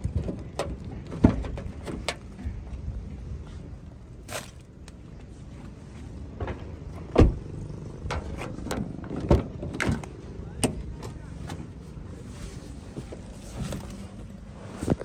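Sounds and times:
car door shutting thump: 7.1s - 7.4s.

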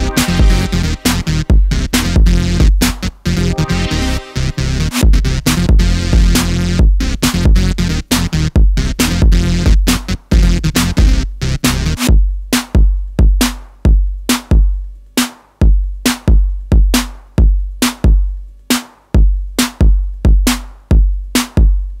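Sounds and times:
electro track: 0.0s - 12.8s
drum machine beat: 0.0s - 22.0s.

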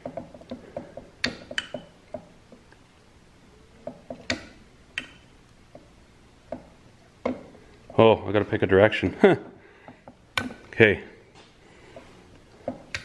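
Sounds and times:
switch clicks and knocks: 1.2s - 2.3s, 3.9s - 5.2s, 12.7s - 13.0s.

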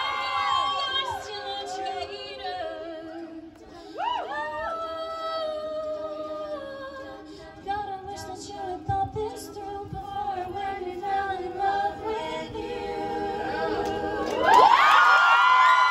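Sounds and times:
female soloist singing: 0.0s - 14.8s
backing voices singing chords: 0.0s - 15.0s
audience cheering and whooping: 14.3s - 15.9s.

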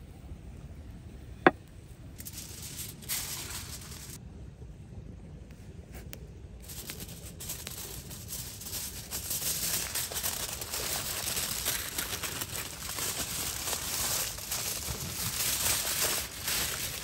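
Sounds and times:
aluminium foil crinkling: 2.2s - 4.2s, 6.6s - 17.0s.

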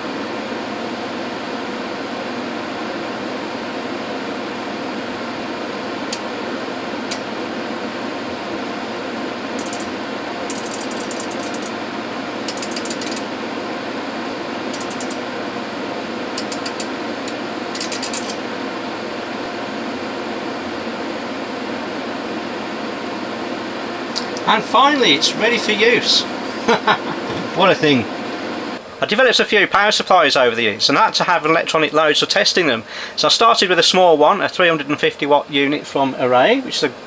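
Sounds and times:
cooling fans whirring: 0.0s - 37.0s
rapid clicking: 9.6s - 9.9s, 10.5s - 11.8s, 12.5s - 13.3s, 14.8s - 15.2s, 16.4s - 18.4s.

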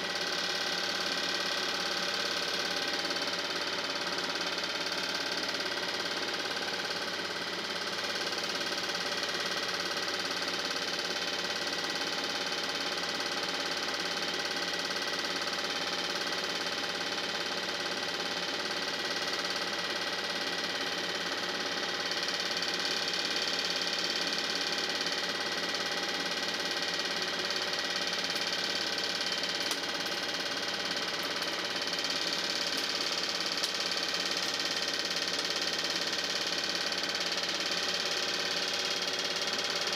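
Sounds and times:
film projector whirring: 0.0s - 39.9s.

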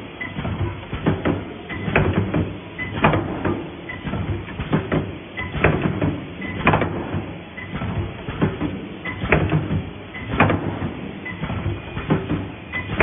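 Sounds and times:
mechanical clatter: 0.2s - 13.0s.

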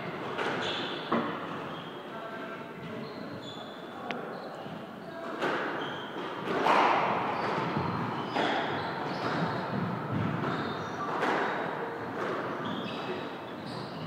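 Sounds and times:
shoes squeaking on wooden floor: 0.4s - 2.0s, 2.8s - 14.0s
squash ball hits echoing: 6.4s - 12.6s.

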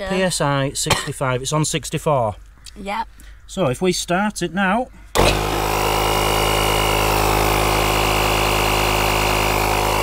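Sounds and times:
air compressor motor drone: 5.2s - 10.0s.

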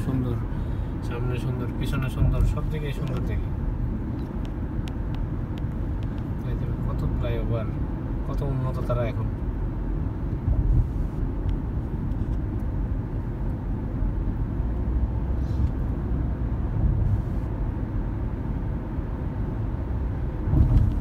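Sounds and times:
car road and engine noise: 0.0s - 21.0s
low rumble: 10.1s - 12.9s, 13.9s - 18.2s, 19.5s - 21.0s.

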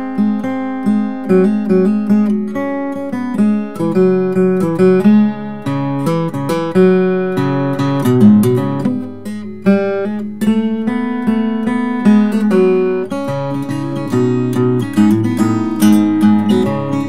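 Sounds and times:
fingerstyle acoustic guitar: 0.0s - 17.0s.

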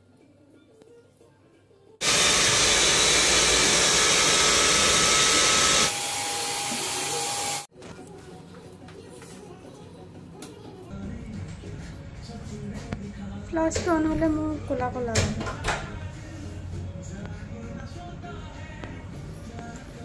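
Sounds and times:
hair dryer blowing: 2.0s - 7.7s.

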